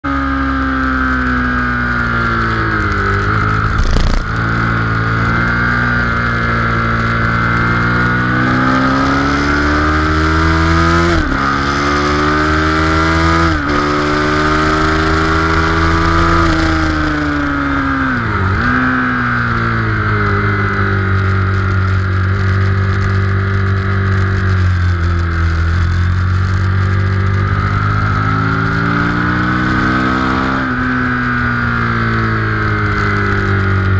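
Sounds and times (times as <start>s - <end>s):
motorcycle engine revving: 0.0s - 33.9s
sharp knock: 3.7s - 4.4s.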